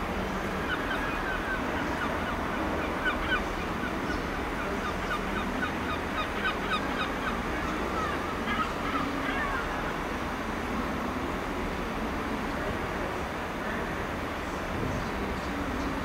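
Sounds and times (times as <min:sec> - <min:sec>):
birds chirping: 0:00.2 - 0:09.9.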